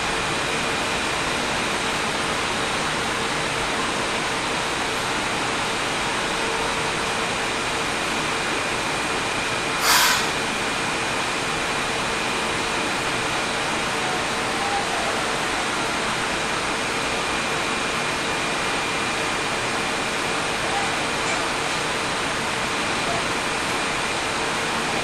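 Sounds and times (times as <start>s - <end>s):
train running noise: 0.0s - 25.0s
thin high whine: 9.7s - 10.7s
short sharp hiss: 9.8s - 10.5s.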